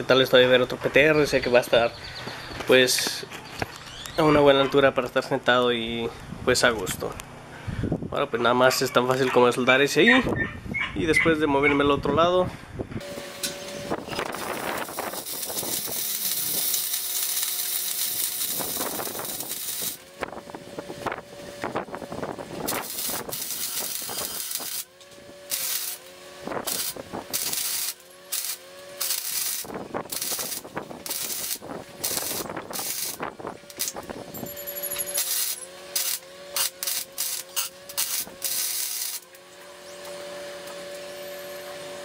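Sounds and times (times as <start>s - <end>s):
steady hum: 12.6s - 42.0s
welding arc crackling and hissing: 13.0s - 39.6s.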